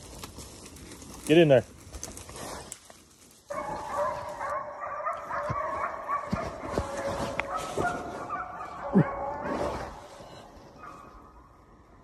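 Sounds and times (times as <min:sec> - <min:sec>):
hounds baying: 0:03.5 - 0:11.4.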